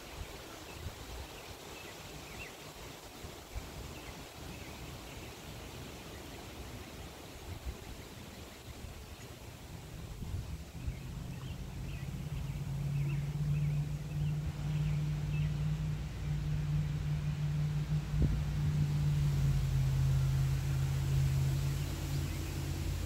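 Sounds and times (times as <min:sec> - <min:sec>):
low engine drone: 0:09.6 - 0:23.0.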